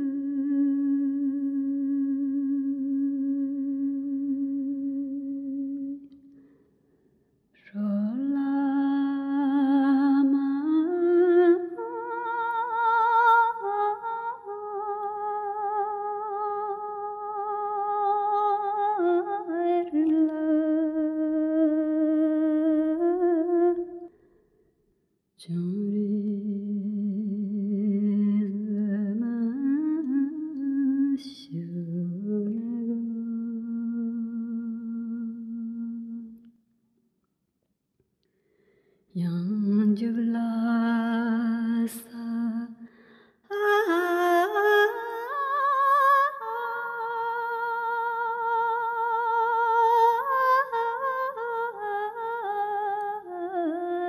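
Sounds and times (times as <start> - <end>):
person singing with vibrato: 0.0 - 6.1, 7.6 - 24.1, 43.5 - 54.0.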